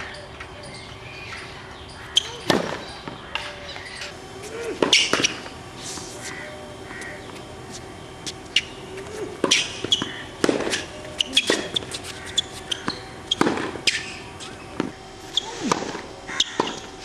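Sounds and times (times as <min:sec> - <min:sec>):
tennis shoes squeaking: 0:00.3 - 0:17.0
tennis ball hits: 0:04.8 - 0:05.5, 0:09.4 - 0:14.2, 0:15.6 - 0:16.0, 0:16.6 - 0:16.9.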